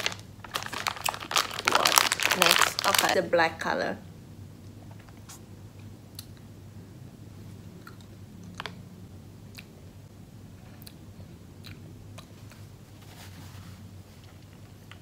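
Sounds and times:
low steady hum: 0:00.0 - 0:15.0
person chewing: 0:10.6 - 0:12.7
soft mouth clicks: 0:11.6 - 0:12.3.

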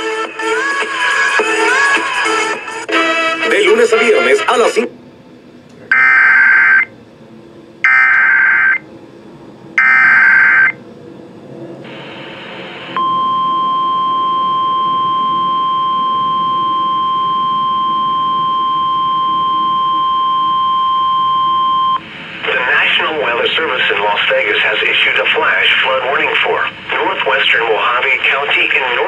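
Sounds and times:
radio static: 0:03.5 - 0:04.9, 0:22.4 - 0:29.0
steady attention tone: 0:03.5 - 0:10.9, 0:11.8 - 0:23.9
digital data tone bursts: 0:05.9 - 0:06.9, 0:07.8 - 0:08.8, 0:09.8 - 0:10.8.

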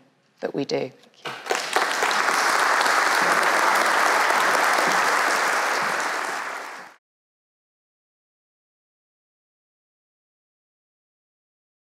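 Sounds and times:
large audience applauding: 0:01.3 - 0:07.0.

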